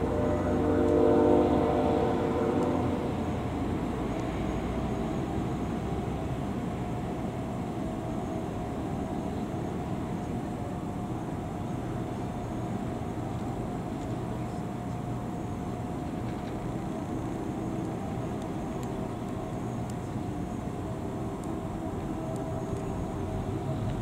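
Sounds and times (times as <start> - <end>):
train horn: 0.0 - 3.5
faint hum: 0.0 - 24.0
vehicle rumble: 0.0 - 24.0.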